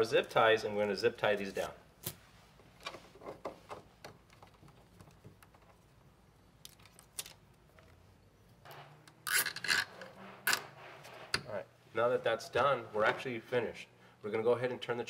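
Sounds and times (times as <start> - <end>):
cable ties clicking and rustling: 1.3 - 8.0.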